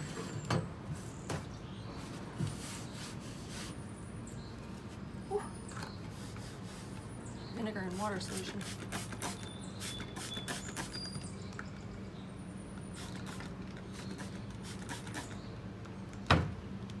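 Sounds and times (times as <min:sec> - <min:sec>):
spray bottle spritzing: 0:08.2 - 0:11.0, 0:13.0 - 0:15.4.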